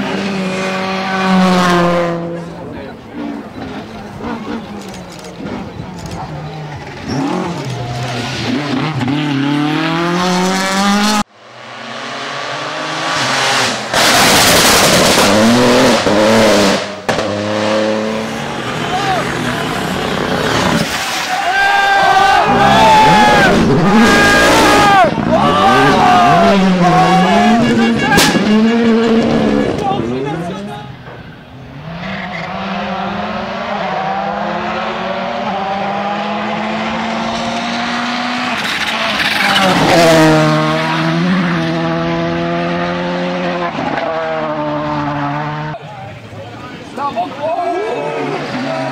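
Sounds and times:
rally car engine accelerating: 0.0s - 21.2s, 22.0s - 30.7s, 31.7s - 45.9s
rally car passing with tyre noise: 0.0s - 48.9s.

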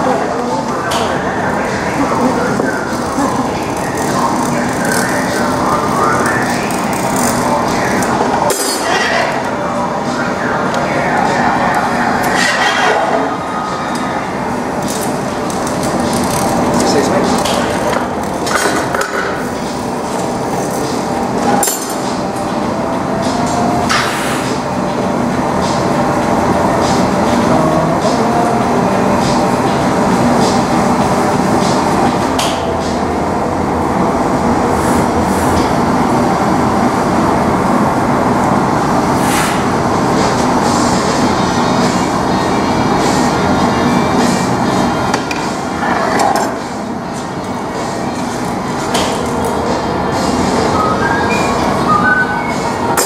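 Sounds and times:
furnace burner rushing: 11.3s - 32.6s, 33.4s - 50.7s
gas burner rushing: 23.2s - 24.8s, 38.8s - 41.6s.

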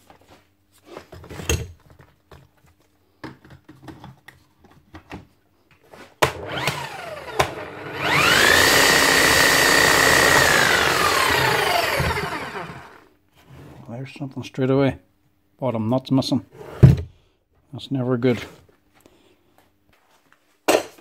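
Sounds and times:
electric motor whining: 6.3s - 13.1s.

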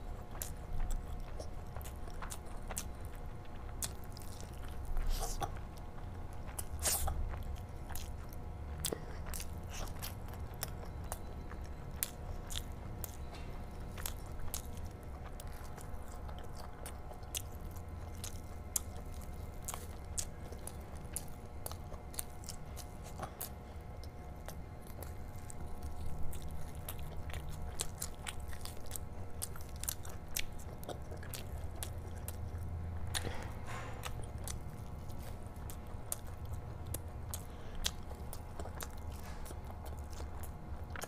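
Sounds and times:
chewing with mouth clicks: 0.0s - 41.0s.

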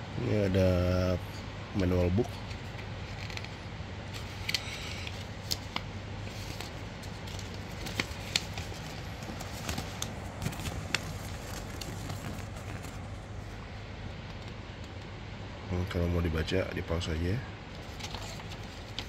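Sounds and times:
steady low hum: 0.0s - 19.0s
paper rustling and crackling: 2.3s - 13.6s, 17.8s - 19.0s.

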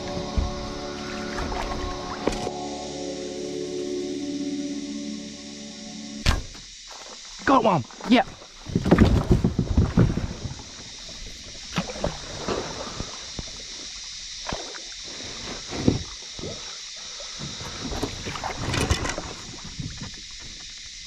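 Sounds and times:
paddle splashing water: 0.0s - 2.5s, 6.9s - 20.7s
high background hiss: 0.0s - 21.0s.

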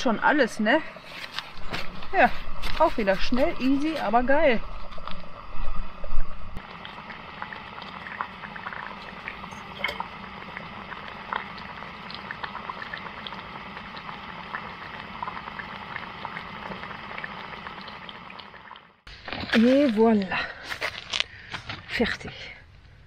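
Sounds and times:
sauce simmering with pops: 6.5s - 20.1s.

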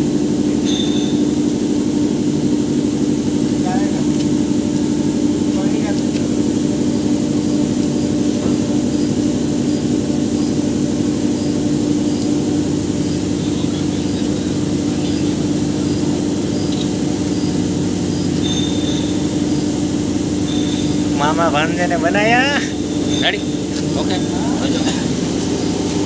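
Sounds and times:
hammer mill humming: 0.0s - 26.0s.

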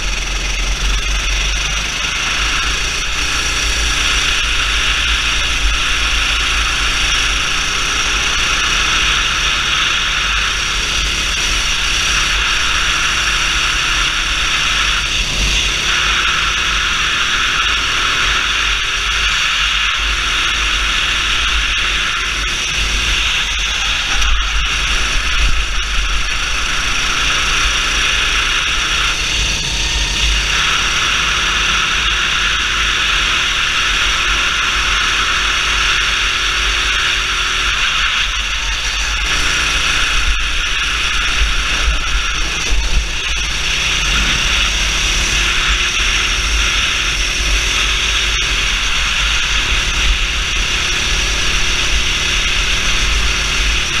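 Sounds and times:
kart engine running: 0.0s - 54.0s
wind noise on microphone: 36.3s - 54.0s.

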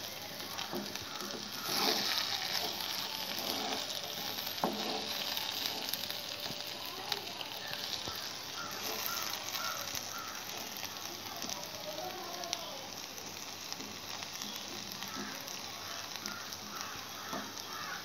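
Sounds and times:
potatoes sizzling in oil: 0.0s - 18.0s
spatula scraping and tapping pan: 0.6s - 6.6s, 16.1s - 17.9s.

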